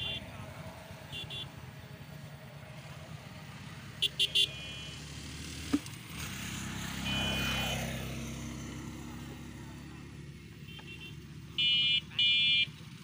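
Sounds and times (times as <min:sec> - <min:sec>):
high vehicle horn beeps: 0:00.0 - 0:00.3, 0:01.1 - 0:01.6, 0:04.0 - 0:05.0, 0:07.0 - 0:07.8, 0:10.6 - 0:12.8
motor traffic hum: 0:00.0 - 0:13.0.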